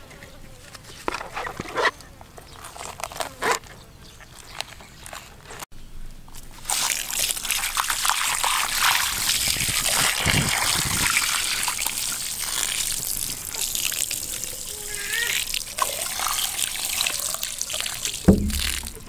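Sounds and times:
water pouring and splashing: 6.3 - 19.0
water sloshing: 6.5 - 19.0.

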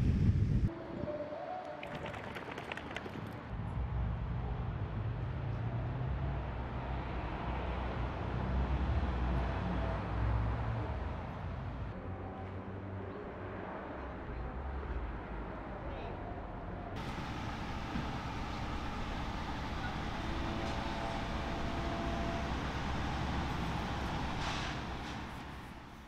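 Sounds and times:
low outdoor rumble: 14.3 - 26.0.

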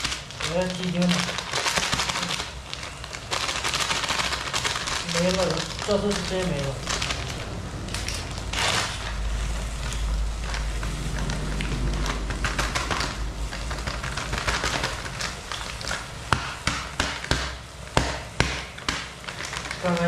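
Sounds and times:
plastic packet crinkling: 0.0 - 20.0
stove burner rumbling: 4.2 - 20.0.

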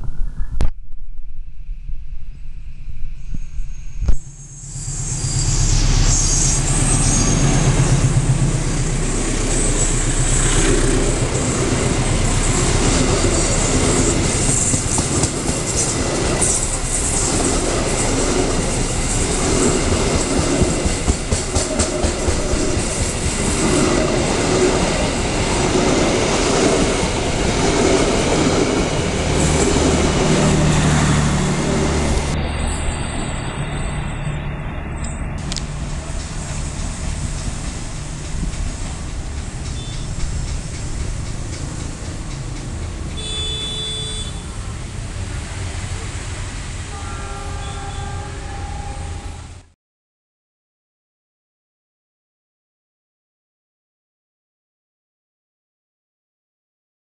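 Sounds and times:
diesel locomotive rumbling: 3.4 - 49.7
train wheels clattering over rail joints: 11.3 - 18.2, 35.4 - 43.2.

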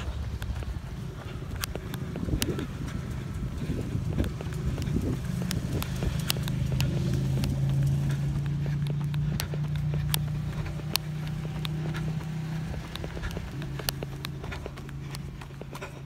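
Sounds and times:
footsteps on pavement: 0.0 - 16.0
motorcycle engines idling: 0.0 - 16.0.

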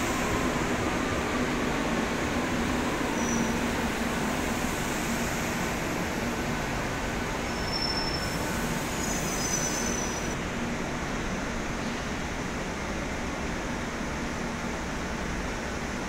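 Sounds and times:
train rumble and hiss: 0.0 - 16.0
faint high squeals: 3.2 - 3.6, 7.5 - 10.4.

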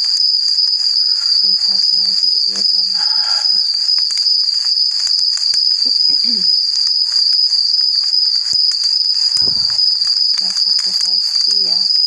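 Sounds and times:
high-pitched whine: 9.3 - 11.9.

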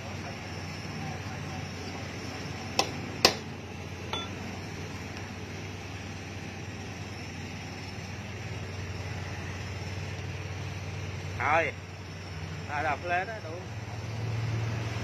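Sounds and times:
steady low hum: 0.0 - 14.2
metal clinks from hand tool: 4.1 - 4.4.

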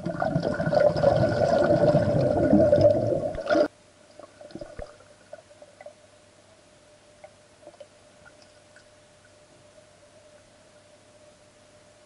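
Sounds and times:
underwater bubbling rush: 0.0 - 5.5.

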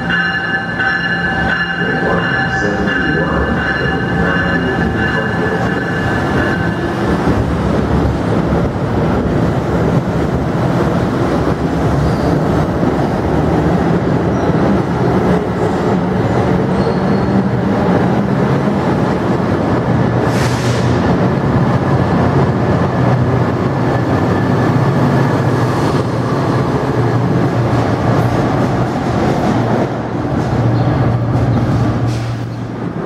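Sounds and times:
train wheels rumbling on rail: 0.0 - 33.0.

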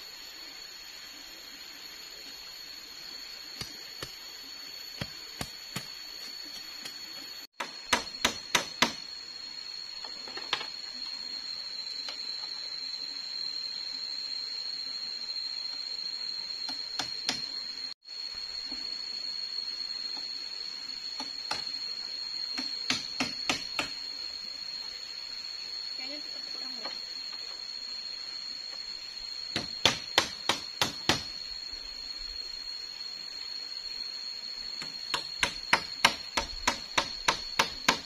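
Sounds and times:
high insect drone: 0.0 - 38.0
sharp knocks on bamboo: 7.6 - 9.1, 16.7 - 17.4, 21.2 - 21.7, 22.6 - 24.0, 29.5 - 31.4, 34.8 - 38.0.

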